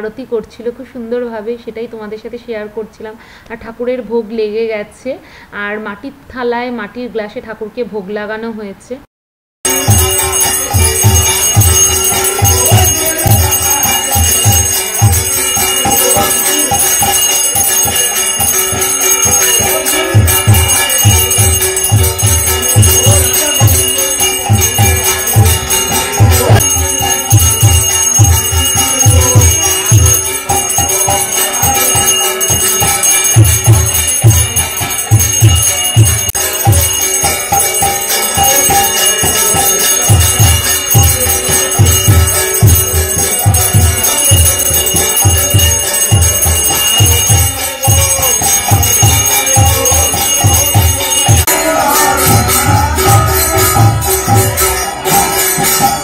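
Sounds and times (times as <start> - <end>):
hand bell ringing: 9.6 - 56.0
steady drum beat: 9.6 - 56.0
devotional music: 9.7 - 56.0.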